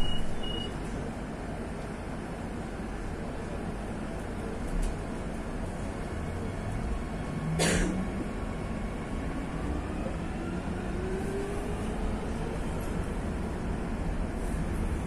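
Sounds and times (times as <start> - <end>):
train rumbling inside carriage: 0.0 - 15.0.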